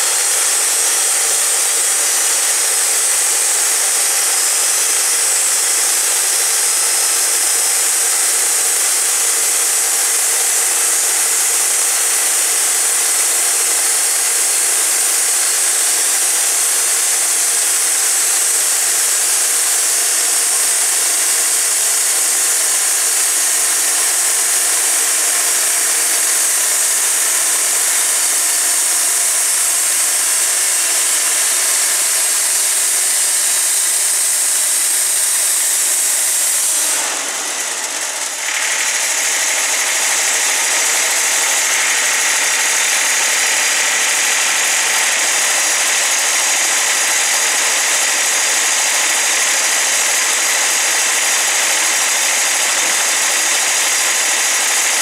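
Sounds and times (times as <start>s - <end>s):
band saw cutting log: 0.0s - 55.0s.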